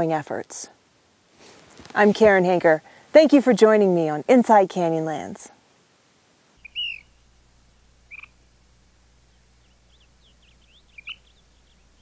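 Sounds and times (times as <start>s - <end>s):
steady low hum: 5.6s - 12.0s
high bird chirps: 6.6s - 7.2s, 8.1s - 8.4s, 9.3s - 12.0s.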